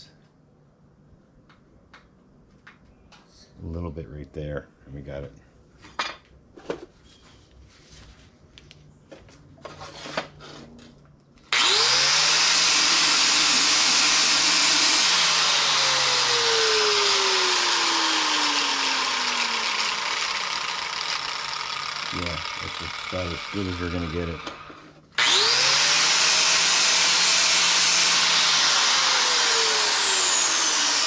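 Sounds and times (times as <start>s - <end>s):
power grinder grinding sheet metal: 11.5s - 31.0s.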